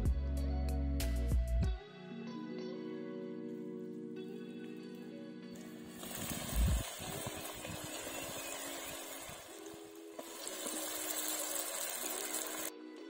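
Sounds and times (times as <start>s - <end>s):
food sizzling in hot oil: 5.8s - 12.7s.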